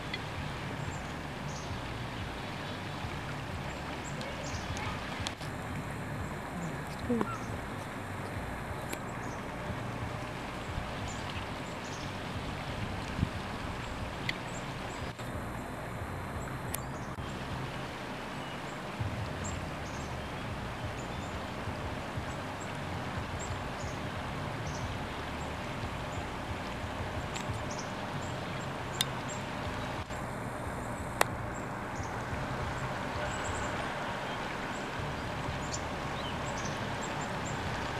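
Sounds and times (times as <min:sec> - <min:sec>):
stream rushing: 0:00.0 - 0:37.9
faint bird chirps: 0:06.5 - 0:07.8.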